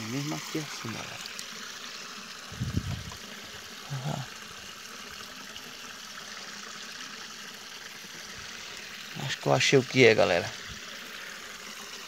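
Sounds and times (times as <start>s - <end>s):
river water flowing among rocks: 0.0s - 12.0s
murmured voice: 3.8s - 4.3s.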